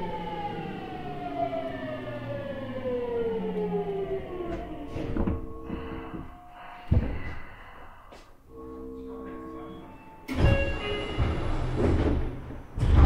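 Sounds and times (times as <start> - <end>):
train inverter whining: 0.0 - 7.5.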